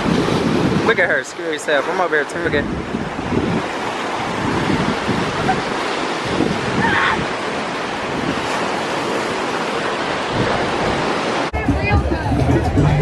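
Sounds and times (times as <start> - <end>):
wind buffeting microphone: 0.0 - 1.2, 2.3 - 12.8
ocean surf rushing: 0.0 - 13.0.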